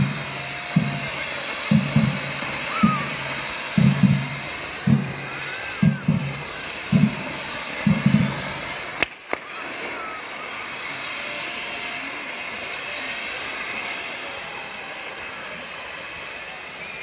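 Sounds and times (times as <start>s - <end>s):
fountain fireworks hissing: 0.0s - 17.0s
sharp pops: 6.9s - 9.5s.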